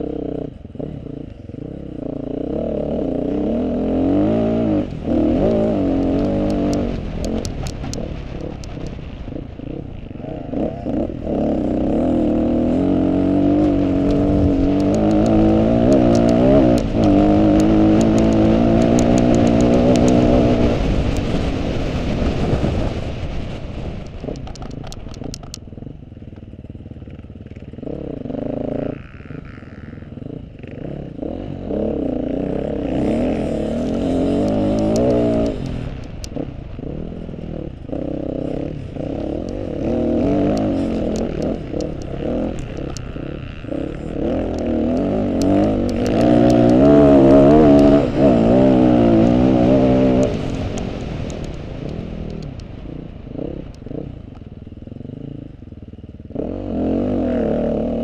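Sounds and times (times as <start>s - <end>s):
motorcycle engine revving: 0.0s - 58.0s
sharp clicks: 4.8s - 9.2s, 13.3s - 21.4s, 24.0s - 25.7s, 33.2s - 37.2s, 37.9s - 52.9s.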